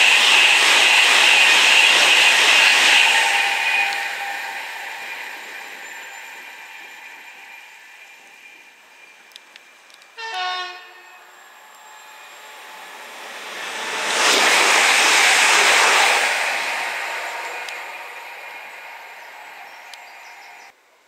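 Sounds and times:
train passing at speed: 0.0 - 20.8
two-tone train horn: 10.2 - 11.3.

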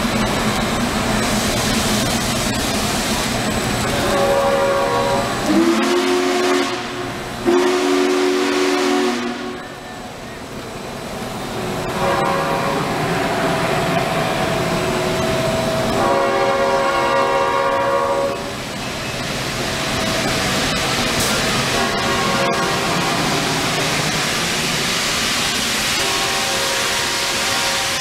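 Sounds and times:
train wheels rumbling: 0.0 - 28.0
deep train whistle blasts: 3.9 - 9.8, 11.9 - 13.0, 15.9 - 18.5, 21.8 - 23.0, 26.0 - 28.0
train horn chord: 4.0 - 9.7, 11.9 - 13.0, 15.9 - 18.5, 21.8 - 22.9, 26.0 - 28.0.

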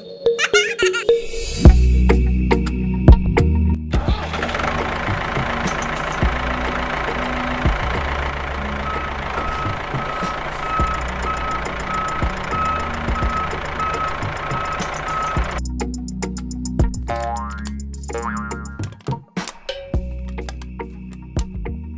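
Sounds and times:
vehicle engine running: 4.0 - 15.8
reversing alarm beeping: 7.3 - 15.6.

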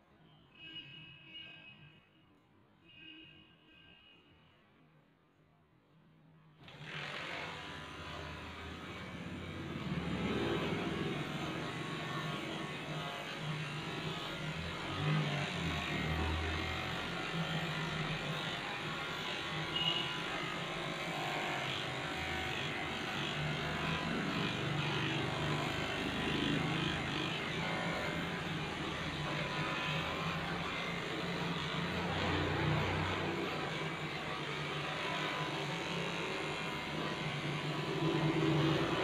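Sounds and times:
electric hair clipper humming: 6.6 - 39.0.

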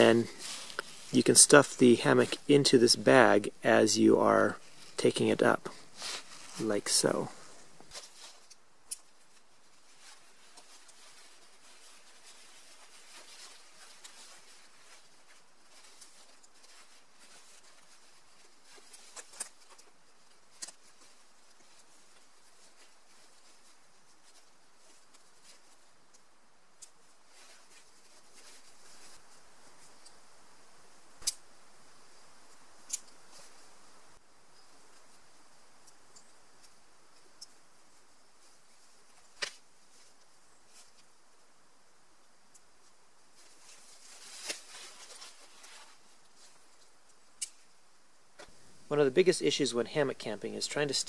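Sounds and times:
nylon fabric rustling: 0.0 - 2.4, 5.7 - 30.1, 43.2 - 49.0.

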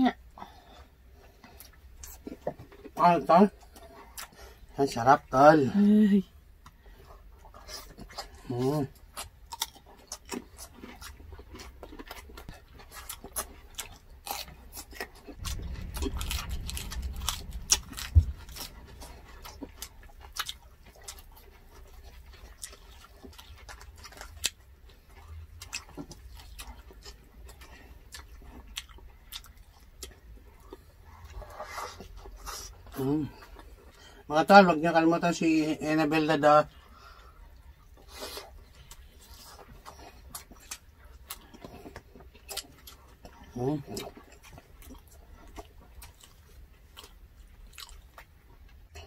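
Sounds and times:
chewing and crunching: 0.1 - 49.0
low rumble: 13.9 - 22.8.

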